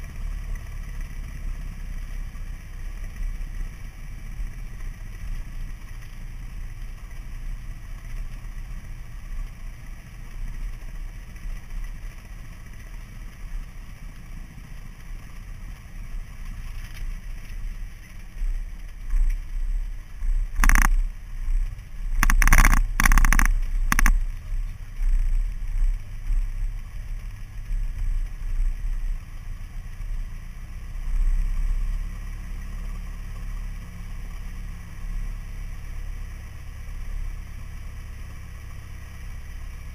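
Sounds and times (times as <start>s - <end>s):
light aircraft engine idling: 0.0s - 39.9s
short sharp clatters: 22.2s - 24.2s.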